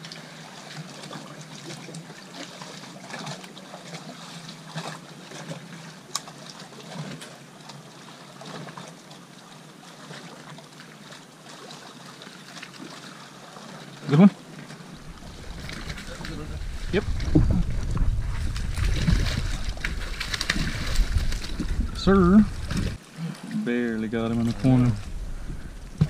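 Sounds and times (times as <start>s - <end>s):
small waves lapping against hull: 0.0s - 26.0s
faint low hum: 14.9s - 26.0s.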